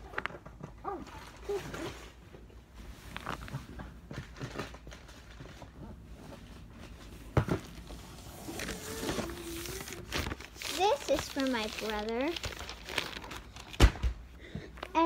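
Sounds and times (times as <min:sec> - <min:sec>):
wrapped presents rustling: 0:00.0 - 0:15.0.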